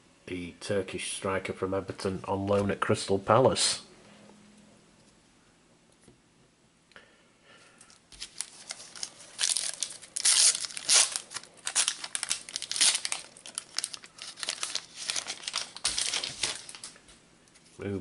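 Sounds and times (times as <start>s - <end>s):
foil wrapper crinkling and tearing: 8.1s - 17.0s.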